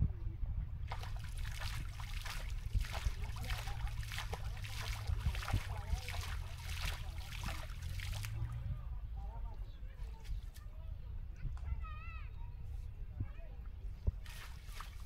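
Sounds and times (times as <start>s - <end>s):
steady low hum: 0.0s - 10.0s
water splashing and sloshing: 0.8s - 8.7s, 14.0s - 15.0s.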